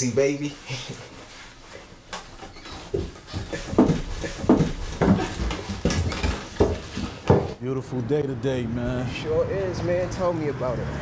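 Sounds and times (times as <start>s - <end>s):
heavy footsteps on stairs: 2.8s - 7.6s.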